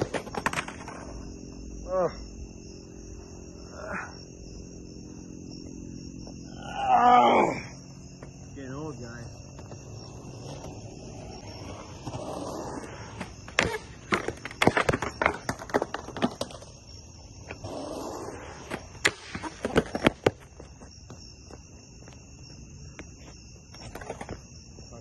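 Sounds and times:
skateboard clacking on concrete: 0.0 - 1.2, 9.6 - 16.8, 18.6 - 20.7
high insect trill: 0.0 - 25.0
skateboard wheels rolling on concrete: 0.0 - 25.0.

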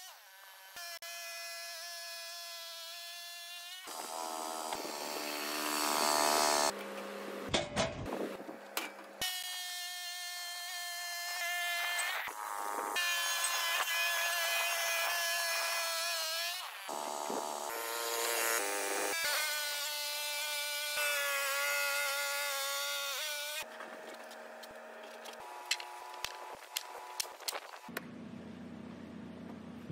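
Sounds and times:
bandsaw high-pitched whine: 3.8 - 6.8, 9.2 - 27.2
sharp clicks and knocks: 6.8 - 8.1.

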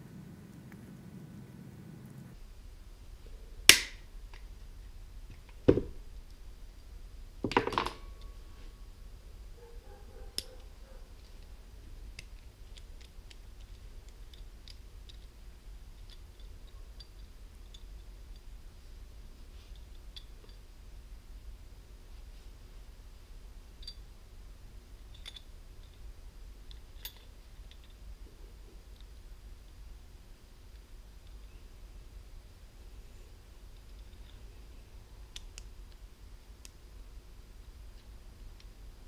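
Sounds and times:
rattle of snaps: 10.3 - 11.5, 35.3 - 36.0.

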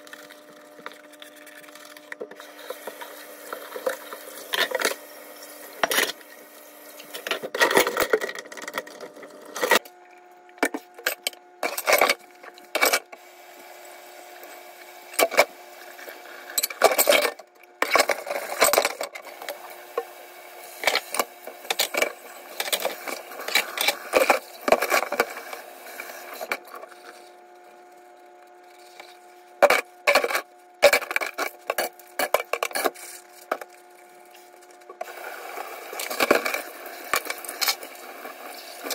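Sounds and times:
faint steady hum: 0.0 - 38.9.

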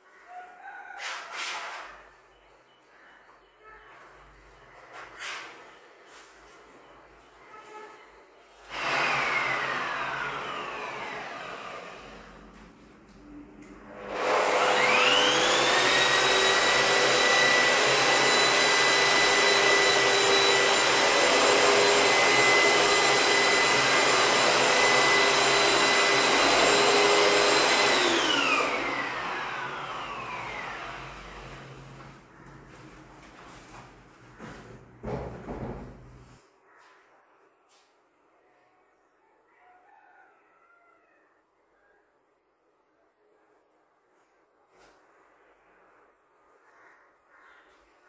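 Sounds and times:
sanding machine whine: 8.6 - 12.8, 13.8 - 32.2.

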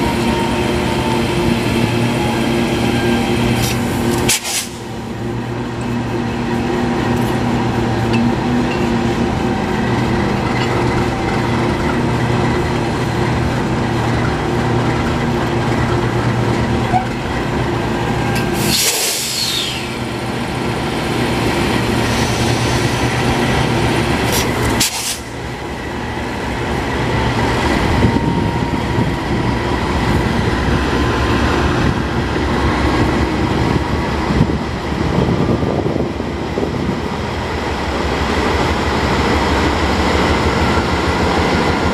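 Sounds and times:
air hissing from brake line: 3.6 - 4.9, 18.5 - 20.0, 24.3 - 25.3.

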